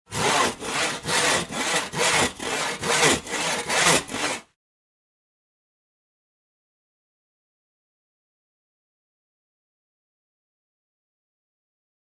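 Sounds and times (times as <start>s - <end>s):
hand saw cutting: 0.1s - 4.6s.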